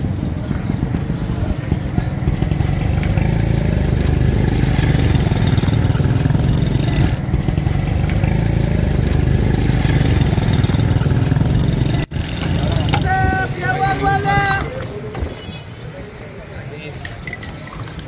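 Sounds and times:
small engine idling: 0:00.0 - 0:12.1.

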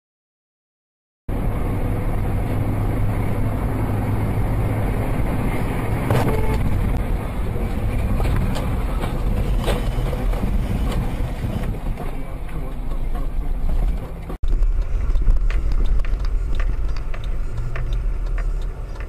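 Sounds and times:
car engine and road noise: 0:01.3 - 0:19.0.

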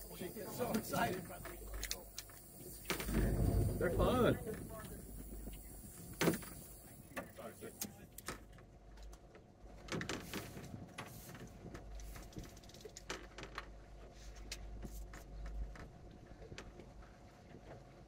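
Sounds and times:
low rumble: 0:02.6 - 0:06.9.

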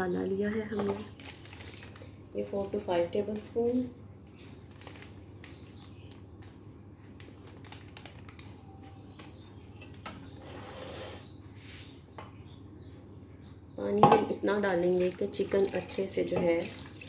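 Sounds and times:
plastic packet rustle: 0:01.1 - 0:02.7, 0:04.4 - 0:06.2, 0:07.0 - 0:08.7.

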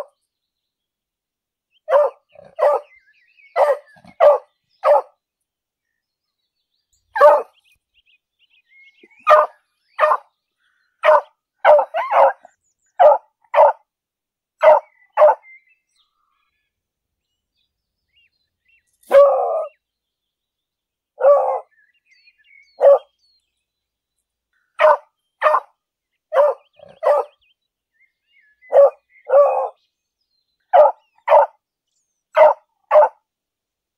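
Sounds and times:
dog barking: 0:01.9 - 0:02.9, 0:03.6 - 0:05.2, 0:07.2 - 0:07.6, 0:09.2 - 0:10.3, 0:11.0 - 0:13.8, 0:14.6 - 0:15.4, 0:19.1 - 0:19.7, 0:21.2 - 0:21.7, 0:22.8 - 0:23.1, 0:24.8 - 0:25.7, 0:26.3 - 0:27.4, 0:28.7 - 0:29.8, 0:30.7 - 0:31.6, 0:32.4 - 0:33.2.

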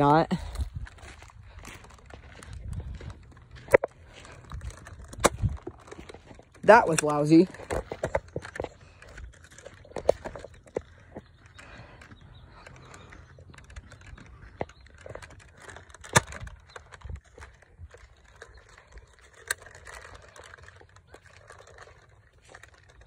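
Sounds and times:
footsteps on dirt trail: 0:00.0 - 0:23.0.

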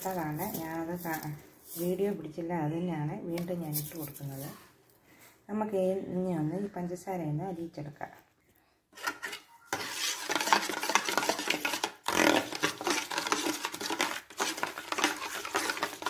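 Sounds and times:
metal spoon stirring in steel bowl: 0:00.0 - 0:02.2, 0:09.0 - 0:16.0.

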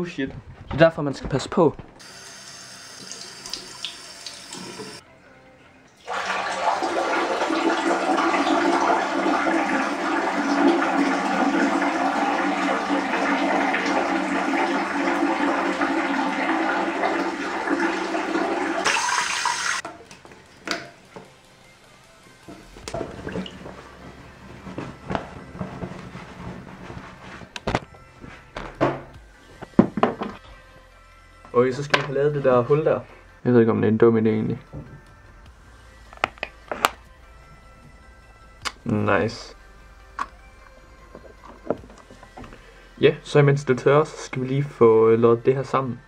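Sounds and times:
tap water running into basin: 0:02.0 - 0:05.0, 0:06.0 - 0:20.0, 0:22.5 - 0:25.8.

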